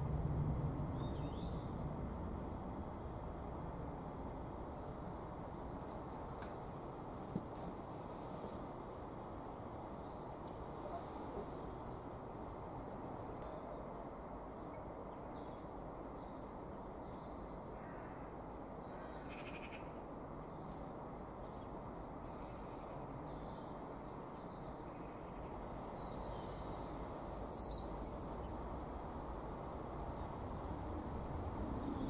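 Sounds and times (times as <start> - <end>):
low background rumble: 0.0 - 5.8, 25.4 - 32.0
bird chirps: 27.4 - 28.7.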